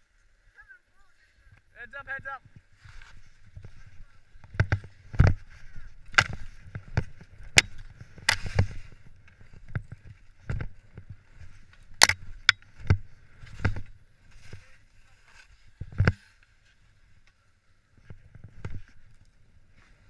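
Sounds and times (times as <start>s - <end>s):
skis scraping over snow: 2.6s - 17.0s.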